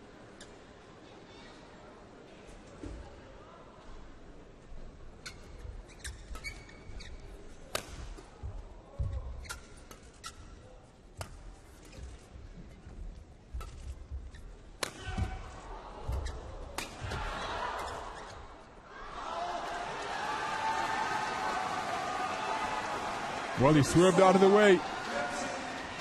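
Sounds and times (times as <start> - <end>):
shoes squeaking on court: 5.2 - 7.5, 9.0 - 10.6, 11.7 - 15.4, 16.0 - 17.0, 17.8 - 18.6
racket hitting shuttlecock: 7.7 - 8.2, 14.8 - 15.4, 16.1 - 17.2
crowd noise: 15.0 - 26.0.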